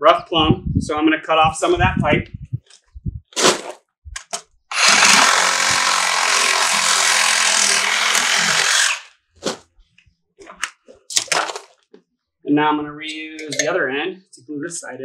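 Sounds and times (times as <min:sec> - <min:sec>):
power saw cutting pipe: 0:04.7 - 0:09.1.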